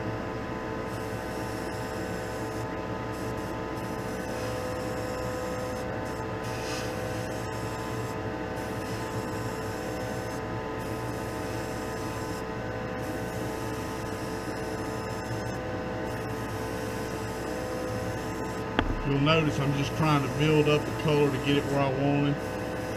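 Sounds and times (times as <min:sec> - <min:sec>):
exhaust fan humming: 0:18.6 - 0:22.1.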